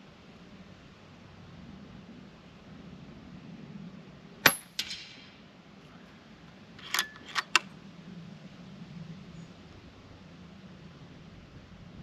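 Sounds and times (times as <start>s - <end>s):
air rifle shot crack: 4.4s - 5.3s
pellet striking target: 4.5s - 5.2s
rifle action metallic clicks: 6.8s - 7.7s.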